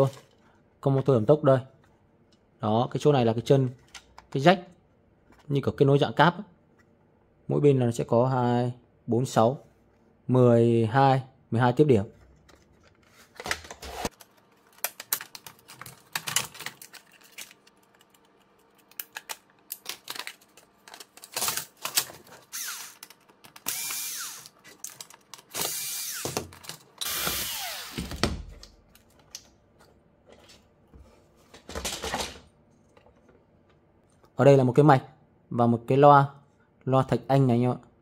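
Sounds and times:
plastic parts clicking: 12.3s - 27.1s
electric screwdriver spinning: 22.5s - 24.6s, 25.5s - 26.4s, 27.0s - 28.1s.

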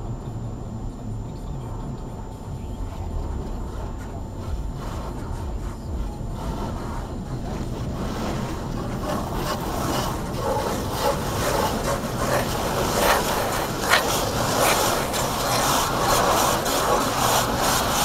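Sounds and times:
brushes scrubbing and slapping: 6.4s - 18.0s
water spray rushing: 7.9s - 18.0s.

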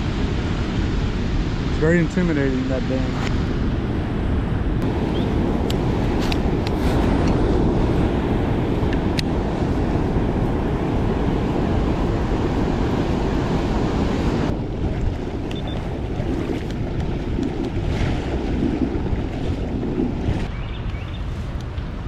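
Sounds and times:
wind buffeting microphone: 0.0s - 22.0s
floodwater rushing and churning: 4.8s - 20.6s.

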